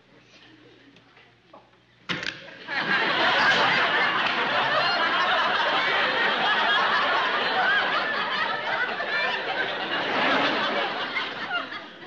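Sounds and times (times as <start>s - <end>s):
studio audience laughing: 2.5s - 12.0s.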